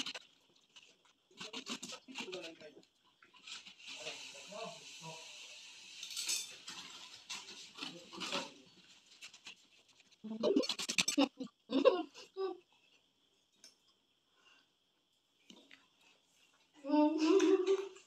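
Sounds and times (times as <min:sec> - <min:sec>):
spoons scraping watermelon: 0:00.0 - 0:04.5, 0:06.5 - 0:11.4.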